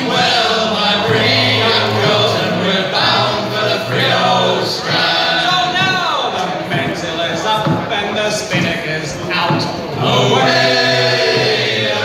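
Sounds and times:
male choir singing: 0:00.0 - 0:06.6, 0:10.0 - 0:12.0.

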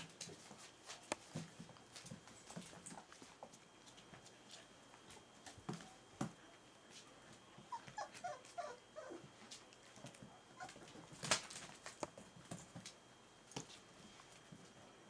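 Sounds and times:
puppy whimpers and yelps: 0:07.7 - 0:09.3, 0:10.6 - 0:10.9.

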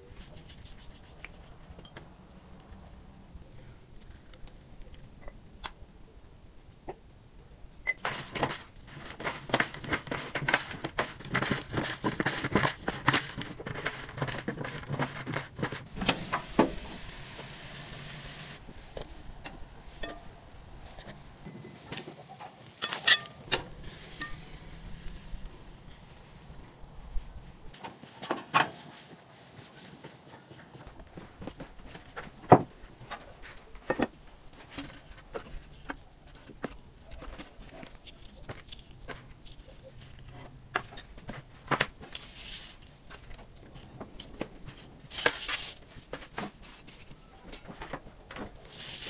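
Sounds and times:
short steady hiss: 0:15.9 - 0:19.0.

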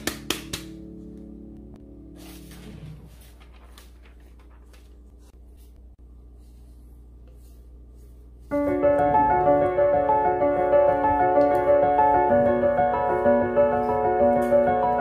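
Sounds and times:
piano music: 0:00.0 - 0:03.4, 0:08.4 - 0:15.0.

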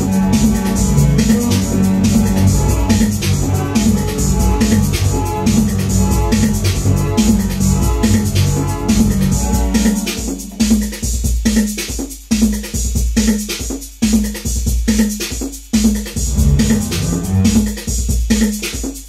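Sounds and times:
deep bass hits: 0:00.0 - 0:10.4, 0:16.2 - 0:17.8
drum machine beat: 0:00.0 - 0:19.0.

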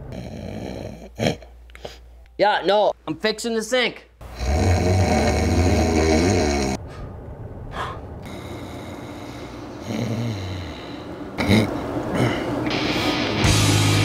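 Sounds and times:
man snoring loudly: 0:00.0 - 0:01.5, 0:04.2 - 0:06.8, 0:08.3 - 0:12.8
steady background noise: 0:00.0 - 0:14.0.

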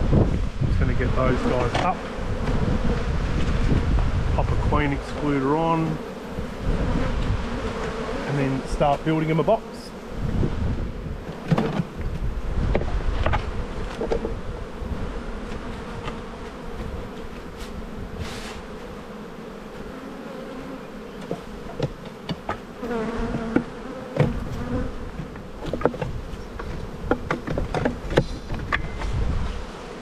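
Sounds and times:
bees buzzing: 0:00.0 - 0:30.0
wooden knocks and clicks: 0:25.3 - 0:29.1.

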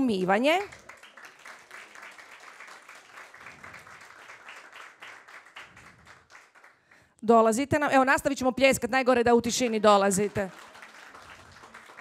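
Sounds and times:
audience applauding: 0:00.0 - 0:07.0, 0:09.6 - 0:12.0.

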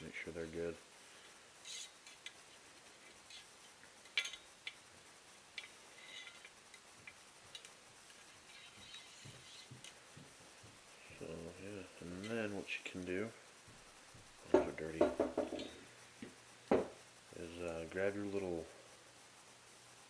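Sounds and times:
faint scratching: 0:00.0 - 0:04.4, 0:05.6 - 0:07.2, 0:08.0 - 0:16.0.

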